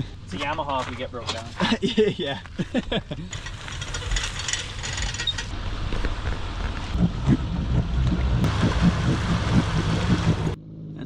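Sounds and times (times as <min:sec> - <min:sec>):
low vehicle rumble: 0:00.0 - 0:11.0
trailer and hull knocks and creaks: 0:03.2 - 0:10.6.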